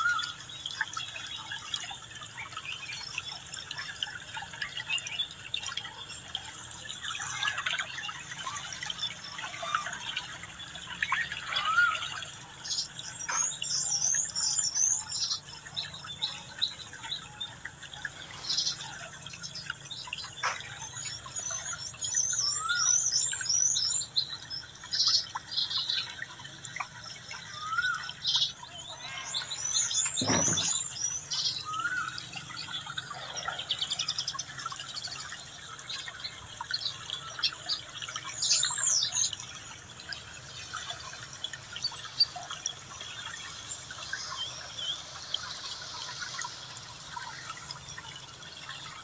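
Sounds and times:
small birds twittering: 0:00.0 - 0:49.0
brief thump: 0:30.2 - 0:30.8.

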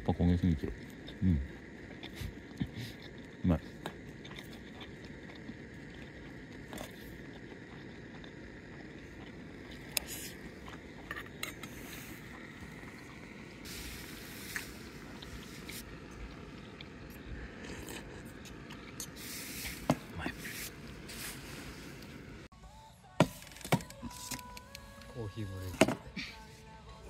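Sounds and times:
metal spoon scraping steel bowl: 0:11.0 - 0:12.0.

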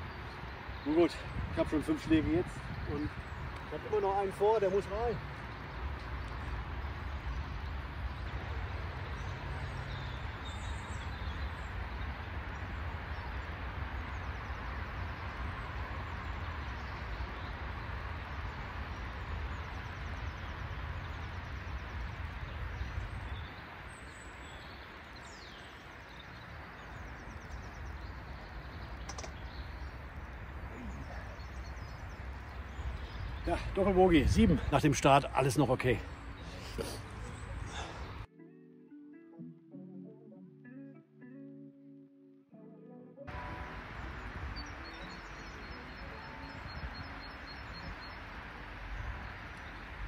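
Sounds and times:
wind rumble on microphone: 0:00.0 - 0:04.3, 0:05.1 - 0:34.8, 0:43.3 - 0:50.0
birds chirping: 0:00.0 - 0:38.3, 0:43.3 - 0:50.0
sharp click: 0:29.0 - 0:29.4.

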